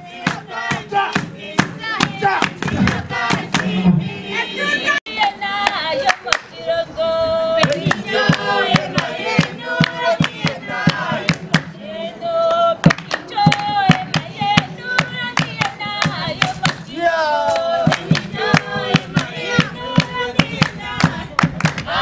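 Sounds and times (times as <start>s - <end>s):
group singing: 0.0s - 22.0s
hand-clapping: 0.2s - 3.7s, 5.6s - 6.5s, 7.6s - 11.8s, 12.5s - 16.9s, 17.5s - 21.9s.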